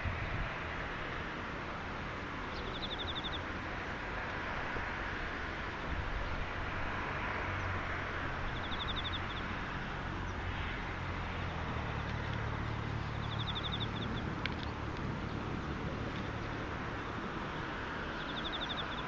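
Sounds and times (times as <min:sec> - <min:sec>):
low steady rumble: 0:00.0 - 0:19.0
insect trills: 0:02.4 - 0:04.6, 0:07.9 - 0:14.8, 0:17.6 - 0:19.0
insects chirring: 0:02.4 - 0:04.6, 0:08.4 - 0:14.8, 0:17.6 - 0:19.0.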